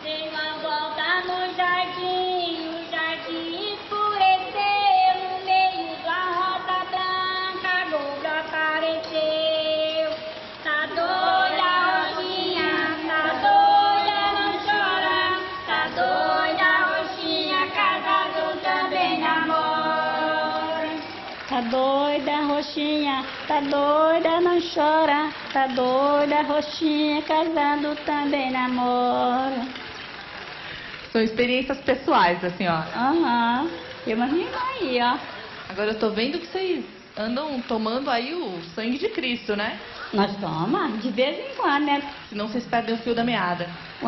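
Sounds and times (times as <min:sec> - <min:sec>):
women singing a folk song: 0:00.0 - 0:29.9.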